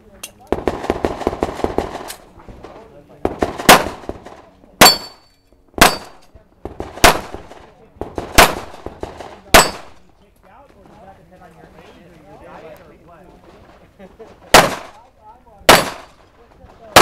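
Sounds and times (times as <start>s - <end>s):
pistol shots: 0.5s - 2.2s, 3.2s - 5.2s, 5.8s - 10.0s, 14.5s - 15.0s, 15.7s - 16.2s
steel plate ringing clang: 4.8s - 6.2s.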